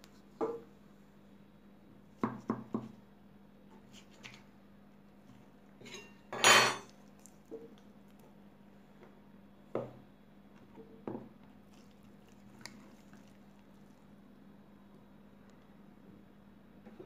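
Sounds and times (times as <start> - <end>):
dishes clinking: 5.8 - 6.9.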